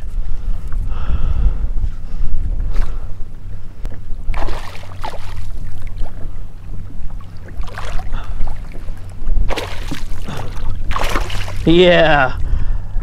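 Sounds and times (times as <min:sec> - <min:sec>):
wind rumble on microphone: 0:00.0 - 0:13.0
water splashing: 0:04.2 - 0:12.2.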